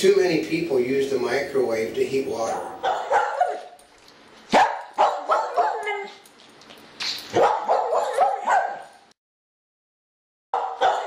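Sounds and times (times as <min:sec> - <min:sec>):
dog barking: 0:02.5 - 0:03.8, 0:04.5 - 0:06.2, 0:07.3 - 0:09.0, 0:10.5 - 0:11.0.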